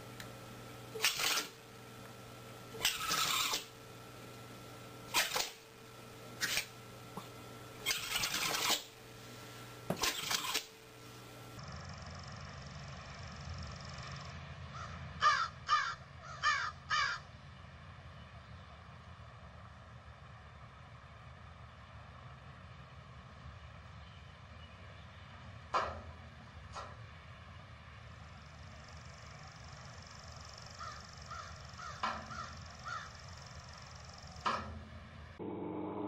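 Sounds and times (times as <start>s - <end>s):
tape hiss: 3.7s - 7.8s
crow cawing: 14.7s - 17.3s, 30.8s - 33.2s.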